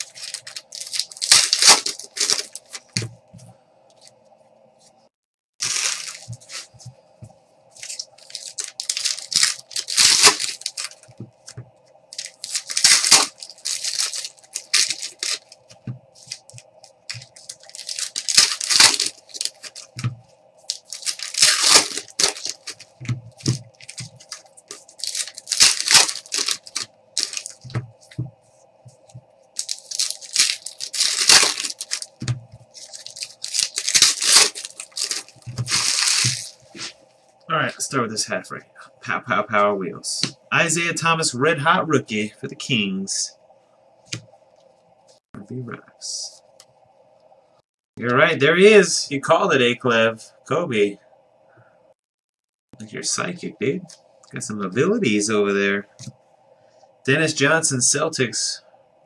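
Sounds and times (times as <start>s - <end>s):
foil wrappers tearing and crinkling: 0.0s - 3.0s, 5.6s - 6.8s, 7.8s - 11.1s, 12.2s - 20.1s, 20.7s - 27.8s, 29.6s - 36.9s
faint steady hum: 0.0s - 52.0s, 52.8s - 59.0s.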